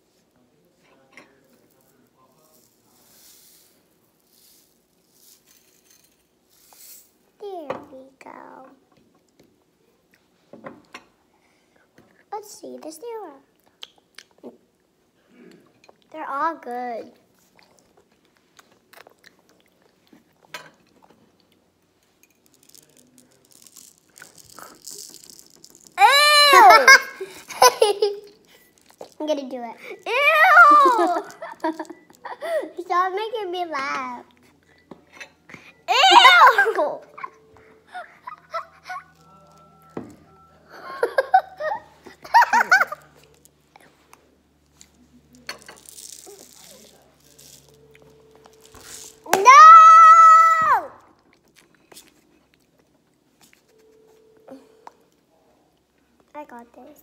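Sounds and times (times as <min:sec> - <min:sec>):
sprinkles rattling in plastic shaker: 0:01.3 - 0:07.2, 0:22.2 - 0:32.4, 0:44.7 - 0:47.8, 0:48.4 - 0:50.1
child squealing: 0:26.0 - 0:27.0, 0:30.0 - 0:31.2, 0:35.9 - 0:36.9, 0:49.3 - 0:51.0
girls giggling: 0:30.1 - 0:32.8, 0:35.9 - 0:39.1, 0:40.7 - 0:43.1.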